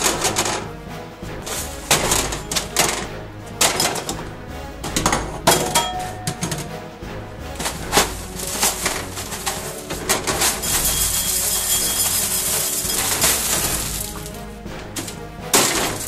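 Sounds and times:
cereal clicking on metal: 7.6 - 14.4
cereal pouring into a bowl: 10.4 - 14.3.

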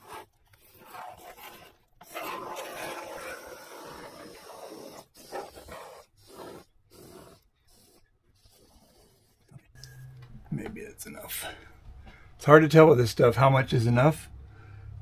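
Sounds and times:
spray foam can hissing: 2.2 - 9.4.

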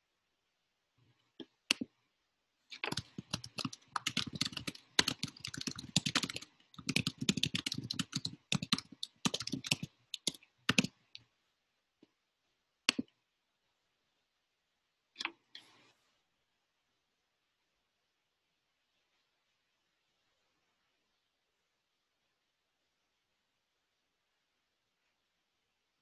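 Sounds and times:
computer keyboard typing: 2.7 - 11.0.

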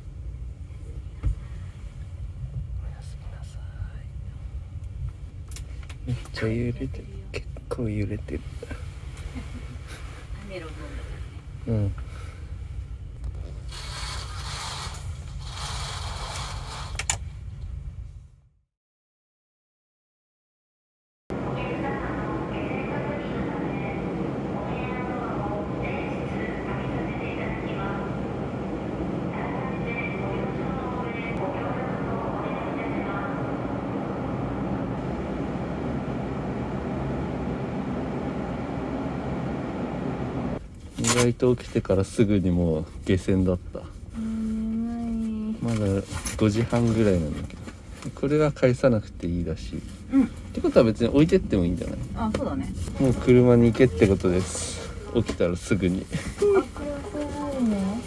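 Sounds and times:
constant low hum: 0.0 - 13.9, 21.3 - 58.0
low drone of ship engines: 21.3 - 40.8.

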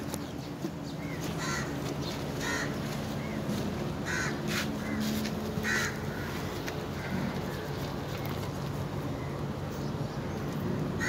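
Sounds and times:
low steady hum: 0.0 - 11.0
crows cawing: 1.0 - 3.4, 4.0 - 7.5.

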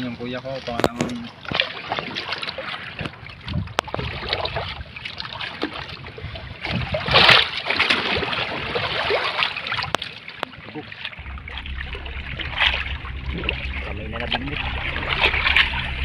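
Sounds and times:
water splashing against boat: 0.0 - 16.0
loud splash: 11.2 - 16.0.

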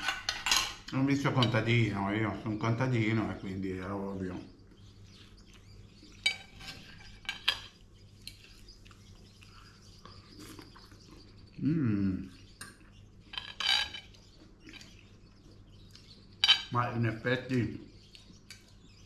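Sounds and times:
cutlery clinking on a plate: 0.0 - 1.7, 6.2 - 7.8
person humming low: 11.6 - 12.3.

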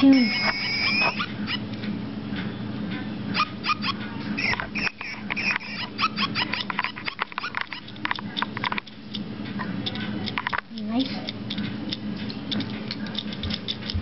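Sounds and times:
toy dog electronic chirps and barks: 0.0 - 1.6, 3.3 - 7.8
low steady hum: 0.0 - 14.0.

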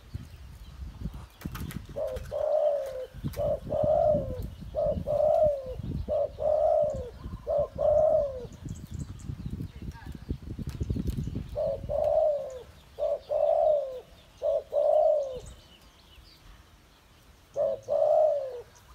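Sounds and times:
low wind rumble on microphone: 0.0 - 16.5
dove cooing: 1.9 - 8.7, 11.4 - 15.7, 17.5 - 18.9.

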